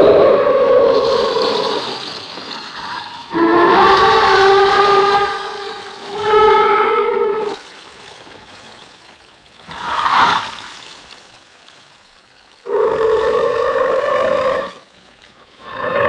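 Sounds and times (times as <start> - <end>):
alligator roar: 0.0 - 7.6, 12.6 - 14.8, 15.6 - 16.0.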